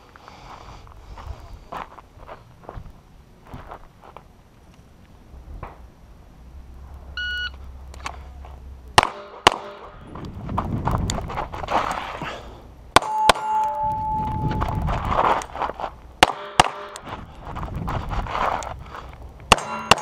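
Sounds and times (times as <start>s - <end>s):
shot timer beep: 7.2s - 7.6s, 13.0s - 14.8s
pistol shots: 9.0s - 9.9s, 16.2s - 17.0s, 19.5s - 20.0s.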